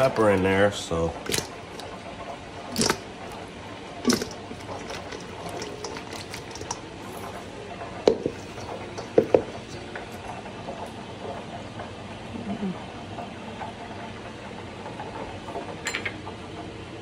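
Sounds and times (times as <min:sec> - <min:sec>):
chicken wings sloshing in bowl: 0:01.1 - 0:02.0, 0:02.7 - 0:03.1, 0:04.0 - 0:07.6
knocks against metal bowl: 0:09.0 - 0:09.5.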